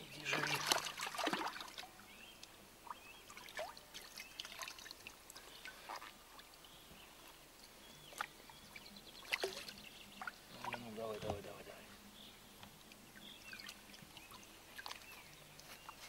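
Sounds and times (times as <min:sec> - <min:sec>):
water splashes and drips: 0:00.0 - 0:11.6, 0:12.6 - 0:16.0.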